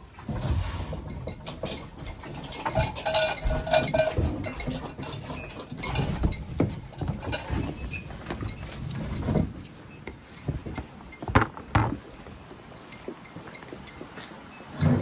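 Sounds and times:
light clinks: 0:00.4 - 0:15.0
knocks: 0:10.5 - 0:12.0.

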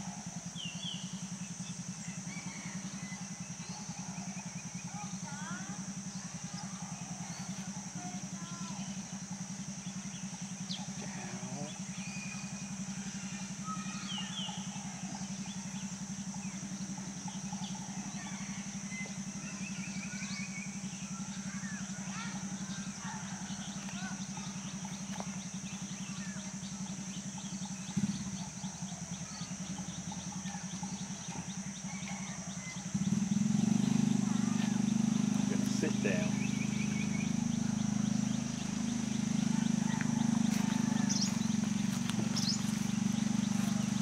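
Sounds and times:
bird trill: 0:00.0 - 0:44.0
faint bird chirps: 0:00.0 - 0:44.0
pulsing mechanical hum: 0:00.0 - 0:44.0.

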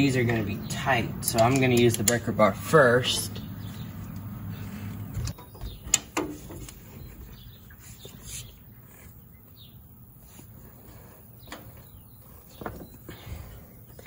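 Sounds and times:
sharp metallic clicks: 0:00.2 - 0:03.4.

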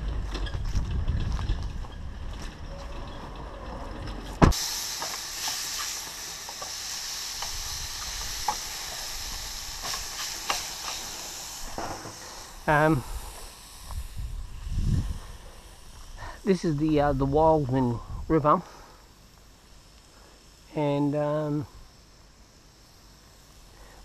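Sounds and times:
wind rumble on microphone: 0:00.0 - 0:04.5, 0:13.0 - 0:16.2, 0:16.8 - 0:18.4
meat sizzling in a pan: 0:04.5 - 0:14.7.

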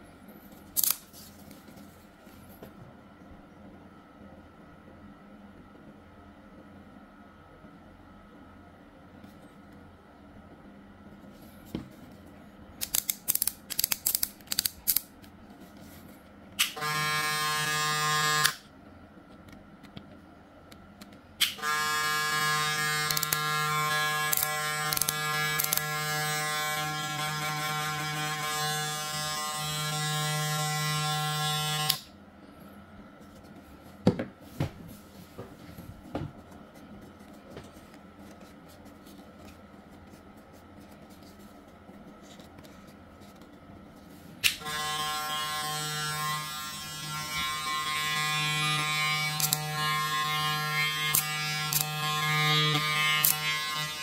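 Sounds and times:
hair clipper buzzing: 0:16.6 - 0:18.6, 0:21.4 - 0:32.1, 0:44.5 - 0:54.0.

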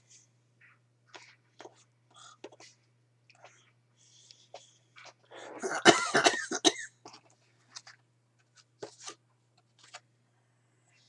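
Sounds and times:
man coughing: 0:05.6 - 0:07.0
flashcards clicking and rustling: 0:07.1 - 0:10.1.

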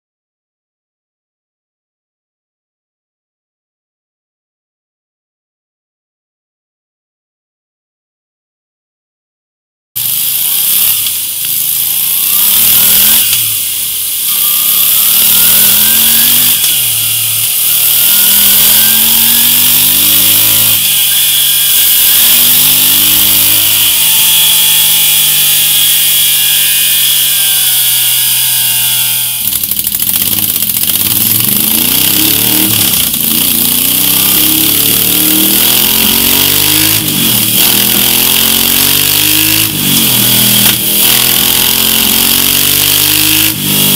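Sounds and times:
motorcycle engine revving: 0:10.0 - 0:43.9.

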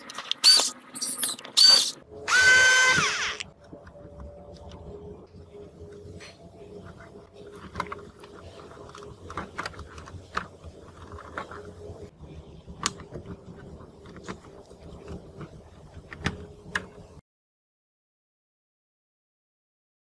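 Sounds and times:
steady faint hum: 0:02.0 - 0:17.2.

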